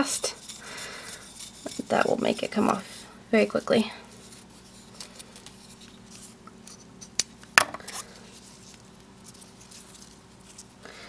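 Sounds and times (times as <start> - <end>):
faint ribbon rustling: 7.8 - 10.8.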